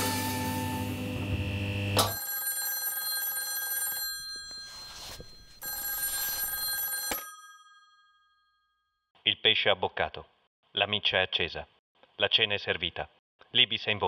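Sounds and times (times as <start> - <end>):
telephone bell ringing: 2.0 - 9.0.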